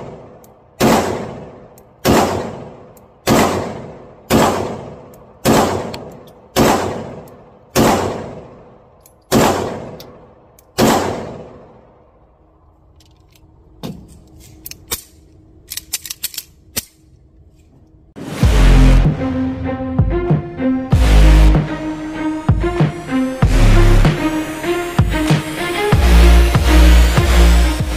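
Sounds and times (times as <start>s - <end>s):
metallic clicks of pistol handling: 1.7s - 2.0s, 5.9s - 6.5s, 8.9s - 9.3s, 10.0s - 10.8s, 12.7s - 18.0s
pistol slide locking back: 14.2s - 17.7s
music: 18.2s - 27.9s.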